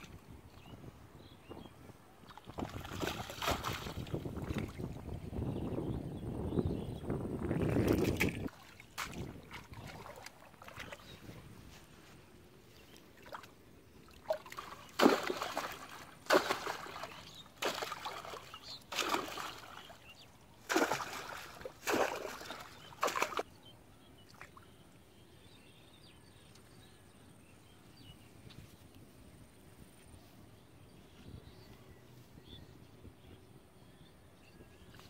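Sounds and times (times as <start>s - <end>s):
water splashing in muddy ditch: 2.2s - 5.0s, 7.5s - 11.4s, 12.8s - 23.5s.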